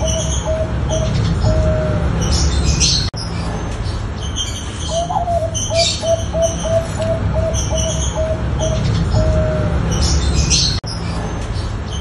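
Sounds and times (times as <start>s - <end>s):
dove cooing: 0.0s - 2.9s, 4.9s - 10.7s
high bird chirps: 0.0s - 12.0s.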